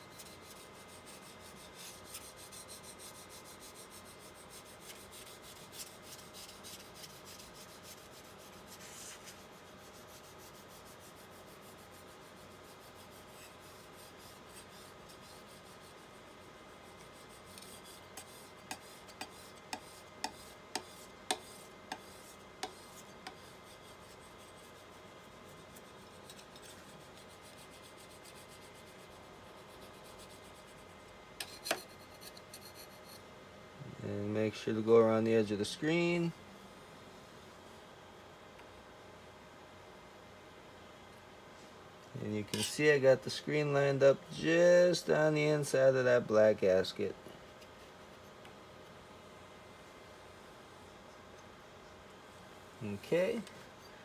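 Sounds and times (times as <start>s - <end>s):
spatula scraping on film: 25.6s - 29.1s, 42.5s - 42.9s.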